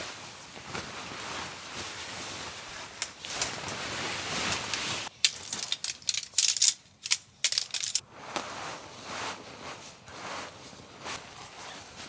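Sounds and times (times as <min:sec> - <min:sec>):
tent fabric rustling: 0:00.0 - 0:06.2, 0:07.5 - 0:12.0
tent poles clacking together: 0:04.5 - 0:08.0.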